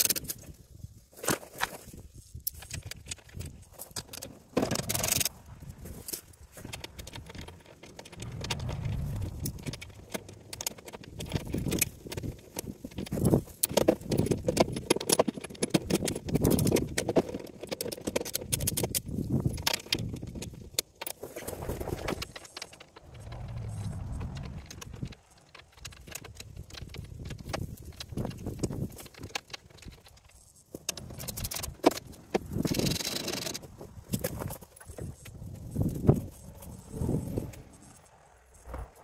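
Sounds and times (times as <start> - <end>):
socket ratchet clicking: 30.9 - 33.6.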